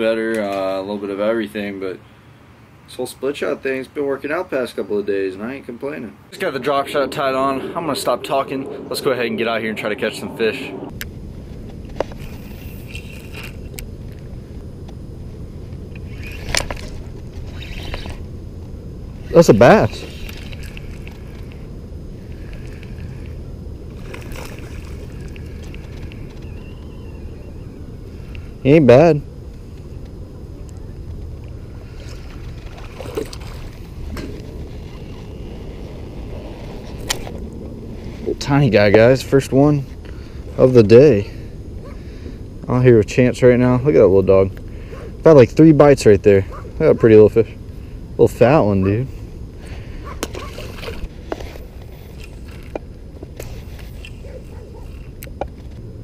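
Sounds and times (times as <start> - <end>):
low rumble: 6.3 - 46.8
fish splashing at the surface: 24.0 - 25.9.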